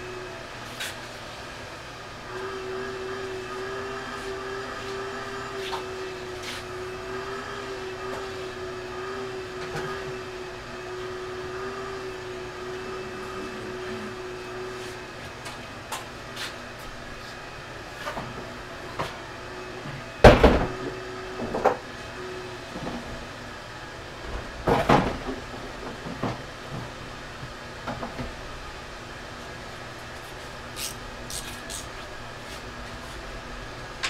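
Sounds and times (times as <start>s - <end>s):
small electric motor humming: 2.2s - 15.2s, 30.3s - 32.2s.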